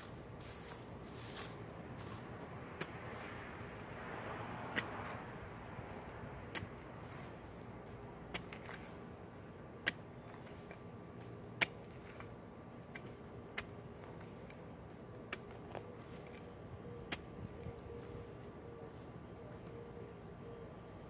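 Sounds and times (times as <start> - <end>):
shovel scraping dry soil: 7.0 - 9.1, 9.8 - 14.6.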